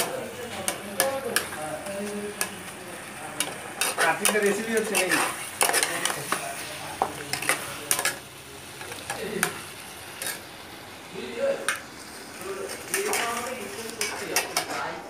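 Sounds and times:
food sizzling: 0.0s - 15.0s
metal spatula scraping metal pot: 3.8s - 6.4s.

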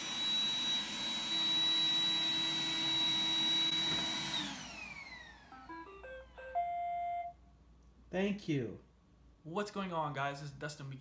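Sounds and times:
robot vacuum whining: 0.0s - 6.8s
electronic beep tune: 5.7s - 7.4s.

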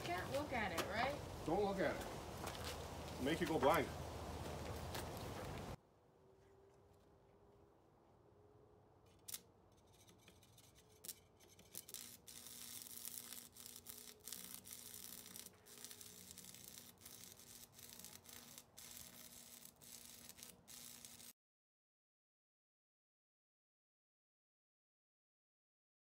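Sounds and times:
welding arc crackling and sizzling: 11.0s - 21.4s.

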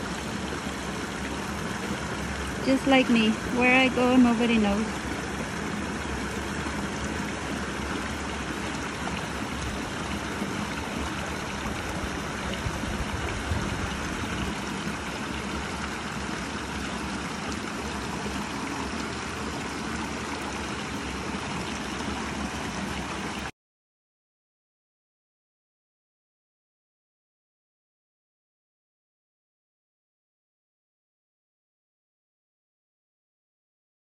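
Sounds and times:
creek running over rocks: 0.0s - 23.5s.

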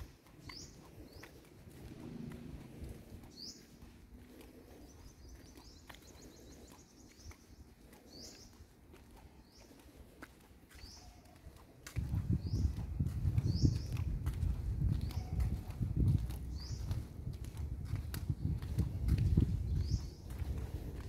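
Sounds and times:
small birds chirping: 0.0s - 21.0s
low rumble: 1.6s - 4.7s.

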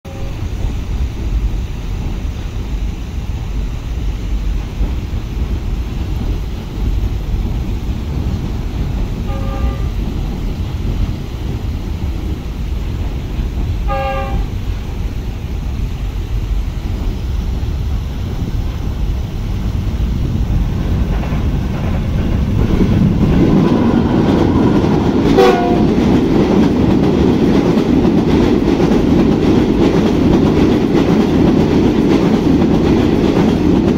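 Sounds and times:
train wheels rumbling on bridge: 0.0s - 33.9s
train horn blasts: 9.2s - 10.0s, 13.9s - 14.6s, 25.4s - 26.0s.

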